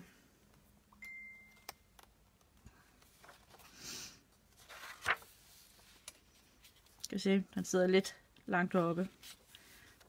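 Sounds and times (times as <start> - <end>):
paper rustling: 2.9 - 3.8, 4.4 - 7.0, 9.0 - 10.0.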